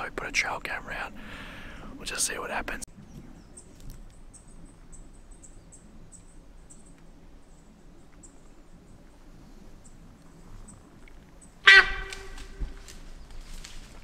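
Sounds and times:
low rumble of wind: 0.0s - 14.0s.

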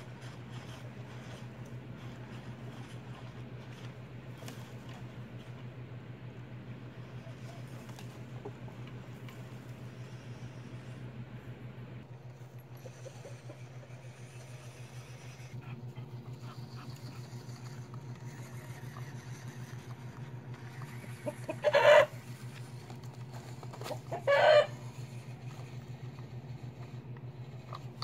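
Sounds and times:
model truck electric motor hum: 0.0s - 28.0s
chicken squawks: 21.1s - 22.2s, 23.9s - 24.8s.

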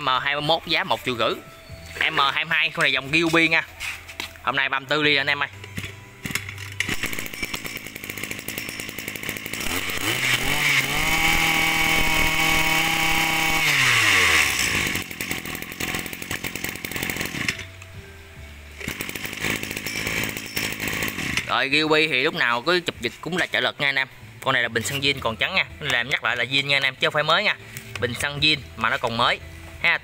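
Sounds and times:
brush-cutter engine revving and idling: 5.2s - 17.7s, 18.7s - 23.8s
engine pull-start: 5.7s - 17.7s, 18.8s - 21.8s.

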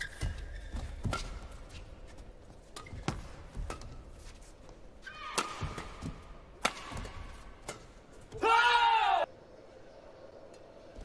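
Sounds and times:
shoes squeaking on floor: 0.0s - 2.0s
rackets hitting shuttlecock: 5.2s - 8.4s.

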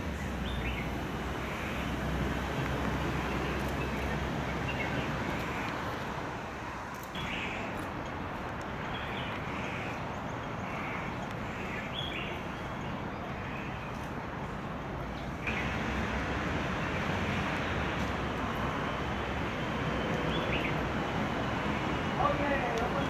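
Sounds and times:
birds chirping: 0.0s - 16.0s, 16.6s - 23.0s
low traffic hum: 0.0s - 23.0s.

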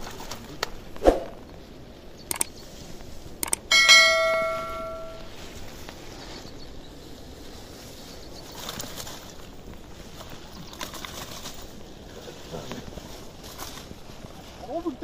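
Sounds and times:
mouse clicks: 2.3s - 2.5s, 3.4s - 3.7s
bright bell ding: 3.7s - 5.3s.

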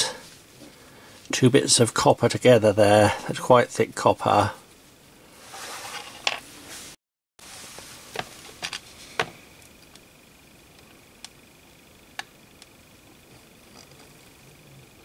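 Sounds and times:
metal strips set down on wood: 5.5s - 6.4s.

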